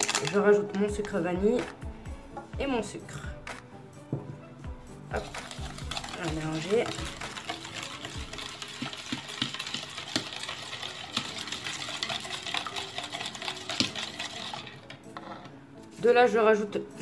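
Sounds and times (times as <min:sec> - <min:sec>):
whisk clicking in bowl: 0:05.1 - 0:15.0.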